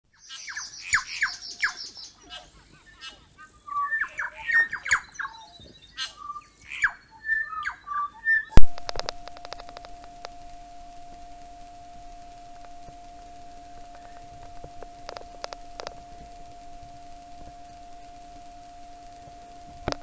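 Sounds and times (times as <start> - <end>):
bird trilling: 0.1 - 8.6
birds chirping and whistling: 0.1 - 8.6
sharp loud click: 8.5 - 9.9.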